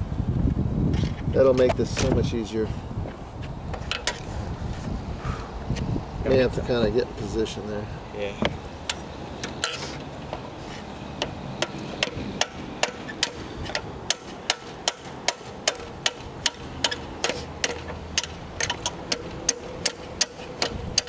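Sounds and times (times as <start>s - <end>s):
hammer tapping on metal punch: 11.2s - 21.0s.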